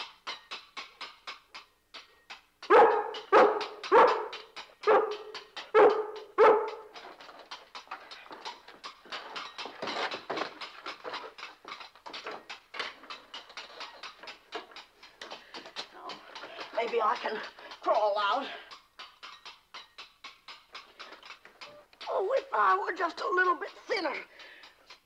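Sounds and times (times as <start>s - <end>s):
dog barking loudly: 2.7s - 6.9s.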